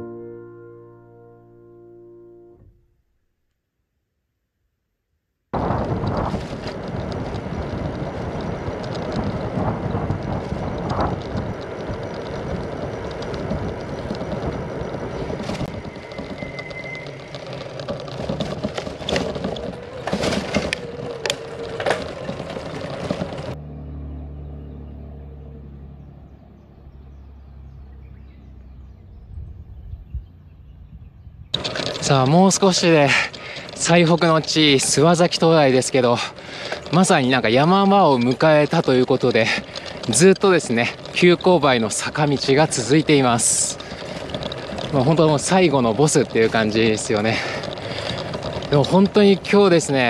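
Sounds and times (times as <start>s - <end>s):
wind on microphone: 5.6s - 23.5s, 29.1s - 31.8s
bicycle knocks and rattles: 5.6s - 23.6s, 31.5s - 50.0s
low rumble: 5.6s - 32.0s.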